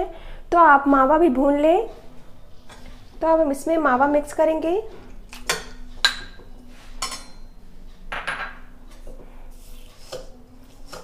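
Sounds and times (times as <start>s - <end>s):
metal spoon clinking and scraping: 7.0s - 7.6s.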